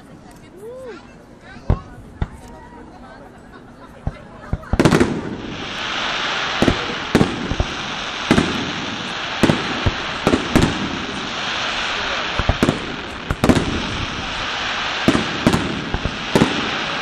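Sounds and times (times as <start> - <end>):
continuous hiss: 0.0 - 17.0
fireworks bangs: 4.0 - 17.0.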